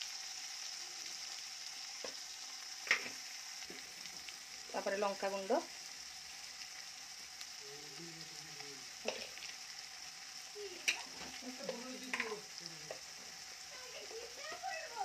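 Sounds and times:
spices sizzling in hot oil: 0:00.0 - 0:15.0.

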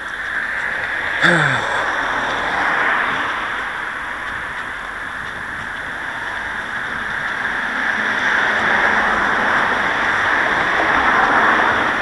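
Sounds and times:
car approaching on road: 0:01.8 - 0:12.0.

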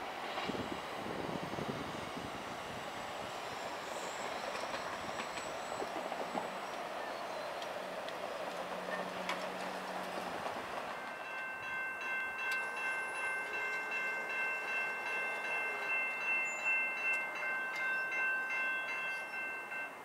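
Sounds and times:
crossing warning bell ringing: 0:03.4 - 0:07.4, 0:08.8 - 0:20.0.

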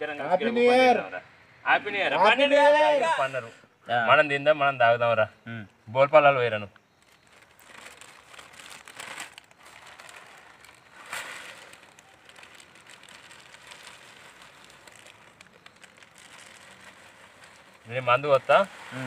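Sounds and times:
plastic bag crinkling: 0:06.9 - 0:19.0.

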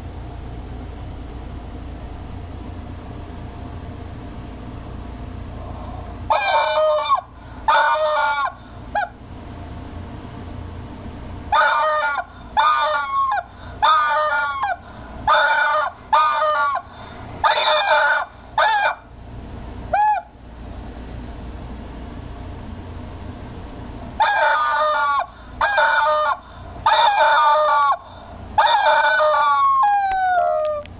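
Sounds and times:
rubber chicken toy squawking: 0:06.3 - 0:09.2, 0:11.5 - 0:19.1, 0:19.9 - 0:20.4, 0:24.2 - 0:30.9.

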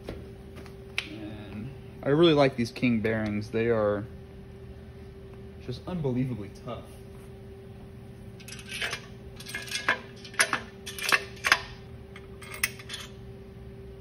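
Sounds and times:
steady shop hum: 0:00.0 - 0:14.0
metal bolts clinking: 0:08.4 - 0:13.2.

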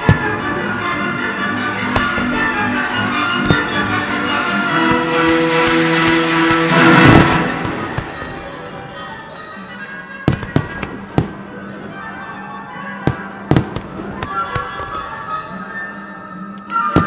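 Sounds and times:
fireworks bursting with sharp bangs: 0:00.0 - 0:01.1, 0:01.7 - 0:09.2, 0:10.2 - 0:11.9, 0:13.0 - 0:15.4
quiet sustained music: 0:00.0 - 0:17.0.

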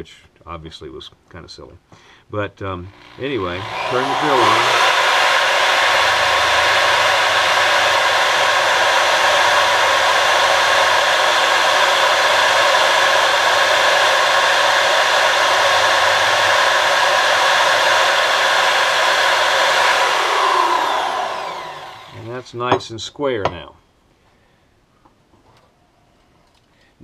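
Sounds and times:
electric drill running: 0:02.9 - 0:22.6.

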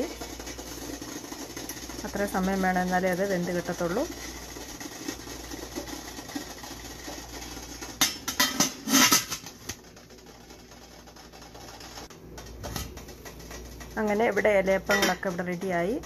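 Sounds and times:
metal on metal clatter: 0:00.0 - 0:15.5
metal lid clinking on pot: 0:14.9 - 0:15.3.

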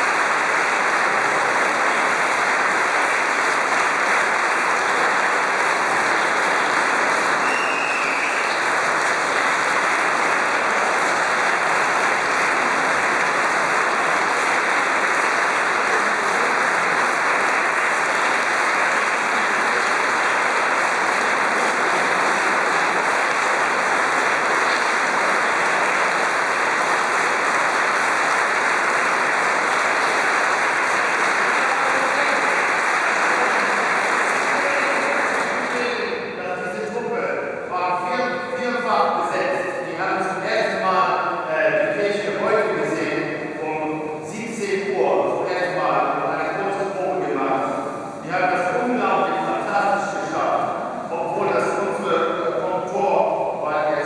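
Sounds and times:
audience applauding: 0:00.0 - 0:37.0, 0:51.0 - 0:53.0.

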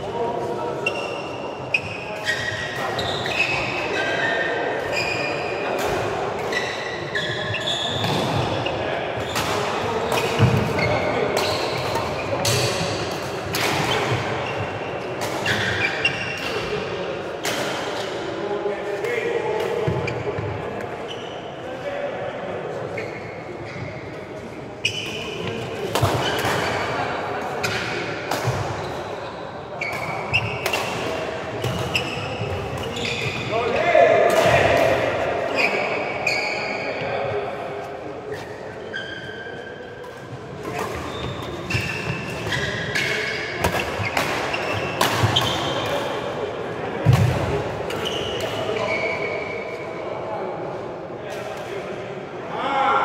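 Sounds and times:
shoes squeaking on court floor: 0:00.8 - 0:13.2, 0:13.8 - 0:16.8, 0:19.8 - 0:21.6, 0:22.9 - 0:27.0, 0:27.6 - 0:34.6, 0:35.4 - 0:37.4, 0:38.2 - 0:46.4, 0:47.9 - 0:50.0
rackets hitting shuttlecock: 0:09.2 - 0:16.8, 0:25.1 - 0:28.9, 0:29.8 - 0:33.5, 0:34.2 - 0:35.4, 0:40.0 - 0:46.4, 0:47.0 - 0:48.9.

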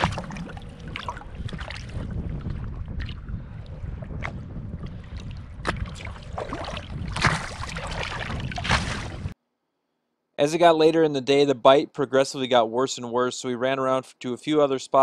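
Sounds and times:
water lapping against boat: 0:00.0 - 0:09.4
wind buffeting microphone: 0:00.0 - 0:09.4.

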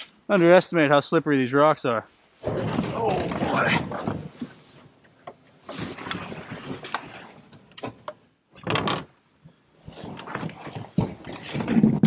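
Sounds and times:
plastic hull scraping on rocks: 0:02.4 - 0:04.7, 0:05.7 - 0:07.4, 0:09.8 - 0:12.0.

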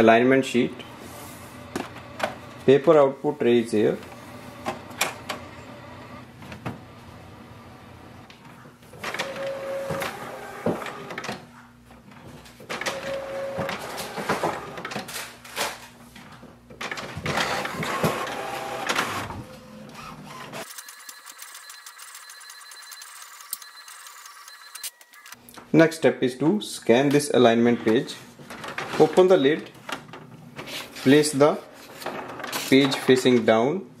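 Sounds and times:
short printer whines: 0:09.1 - 0:11.2, 0:12.8 - 0:14.8, 0:17.3 - 0:25.4
printer clicks and clatter: 0:12.7 - 0:15.2
printer motor whirring: 0:17.3 - 0:25.3.

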